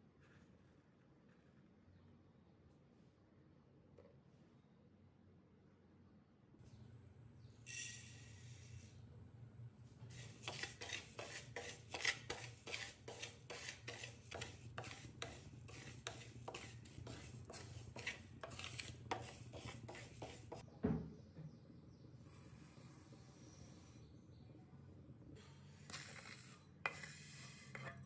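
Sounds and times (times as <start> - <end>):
wooden stick scraping lentils in pan: 10.1 - 20.6, 26.0 - 28.0
thump: 20.8 - 21.2.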